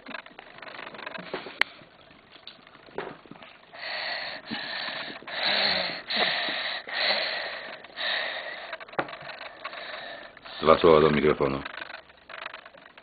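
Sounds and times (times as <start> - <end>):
person breathing heavily: 3.7 - 8.9, 9.5 - 10.8.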